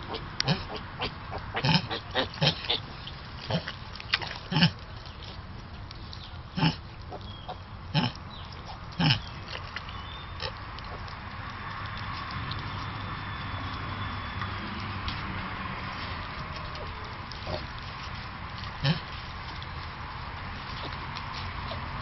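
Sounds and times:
pigs grunting: 0.0s - 4.8s, 6.6s - 9.4s, 16.1s - 17.8s, 18.7s - 19.2s.

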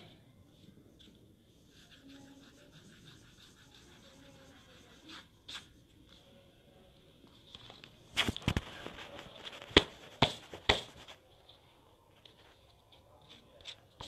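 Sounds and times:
eraser rubbing on paper: 1.5s - 5.8s.

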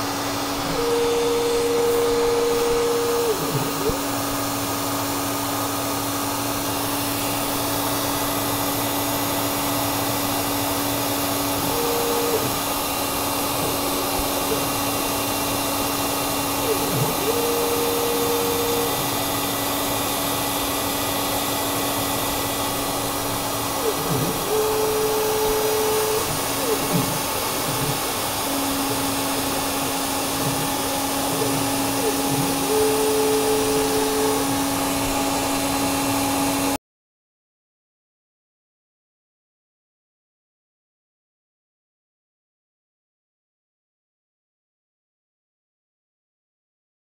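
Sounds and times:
axis motors whining: 0.0s - 36.8s
spindle motor running: 0.0s - 36.8s.

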